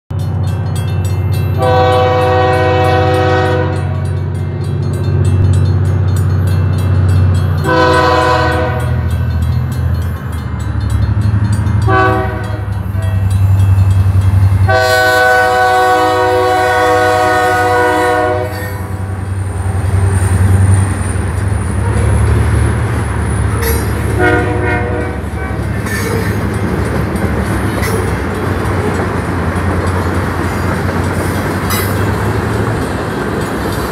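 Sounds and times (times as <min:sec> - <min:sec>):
freight cars rolling: 0:00.1 - 0:33.9
locomotive air horn blasts: 0:01.6 - 0:04.1, 0:07.6 - 0:09.1, 0:11.8 - 0:13.2, 0:14.7 - 0:19.2, 0:23.5 - 0:25.7.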